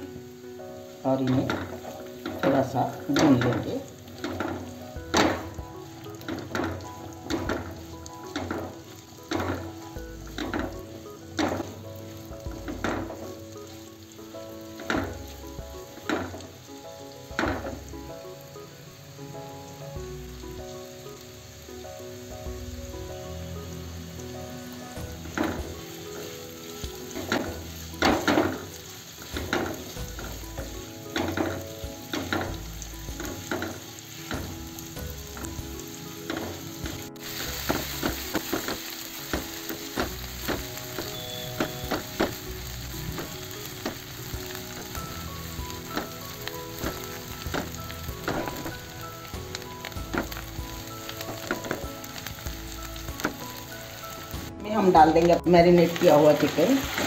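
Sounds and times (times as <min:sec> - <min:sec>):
onions sizzling in a pan: 0:00.0 - 0:57.0
spatula stirring in a pan: 0:00.9 - 0:17.7, 0:24.9 - 0:53.7.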